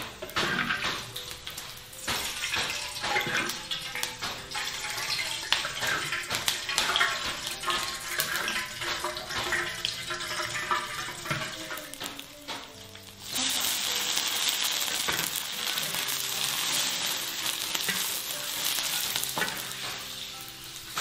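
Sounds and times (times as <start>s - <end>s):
metal spatula scraping a pan: 0.0s - 12.0s, 13.4s - 21.0s
food sizzling in a wok: 0.0s - 21.0s.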